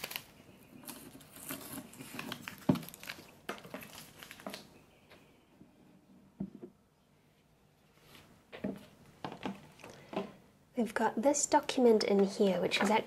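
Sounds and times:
ribbon crinkling against paper: 0.0s - 4.8s.

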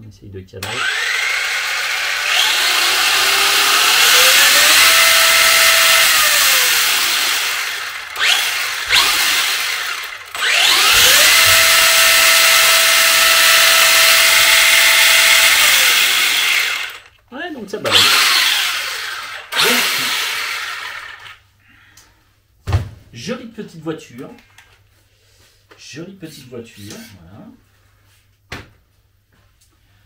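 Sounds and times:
electric motor whining: 0.6s - 17.1s, 17.9s - 21.4s.

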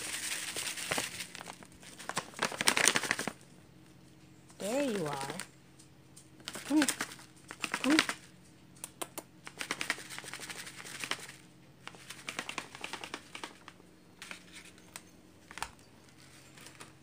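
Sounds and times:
faint low hum: 0.0s - 17.0s
separate ticks: 8.8s - 9.3s.

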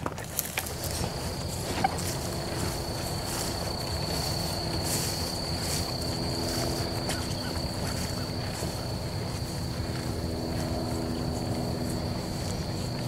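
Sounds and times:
steady high-pitched whine: 0.0s - 13.0s
footsteps through field grass: 0.1s - 13.0s.

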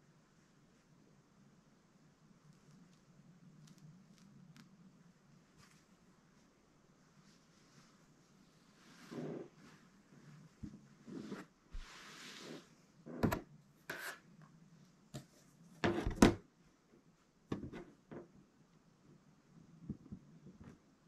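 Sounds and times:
fabric rubbing: 7.2s - 12.8s.

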